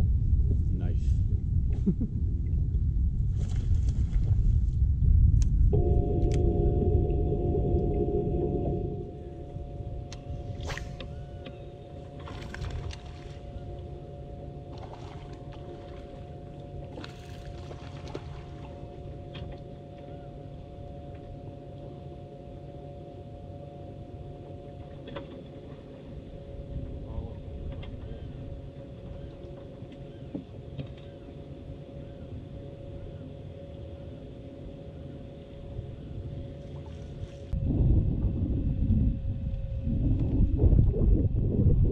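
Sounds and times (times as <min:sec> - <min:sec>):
wind and water rumble: 0:00.0 - 0:41.9
fishing rod cast swish: 0:10.5 - 0:11.2.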